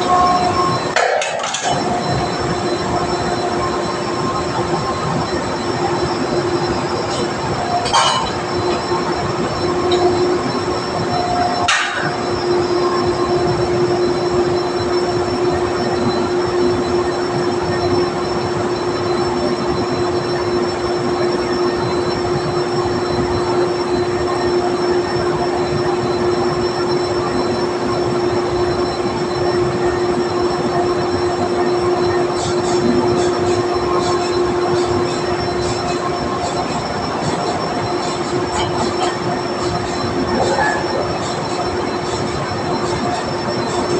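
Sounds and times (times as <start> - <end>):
drilling rig machinery running: 0.0 - 43.9.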